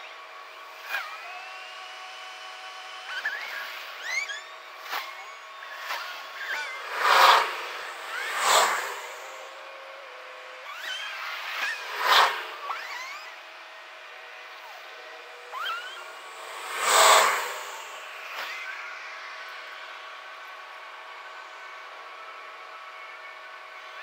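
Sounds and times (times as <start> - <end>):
steady background hum: 0.0 - 24.0
cars passing: 5.8 - 13.3, 14.0 - 19.6.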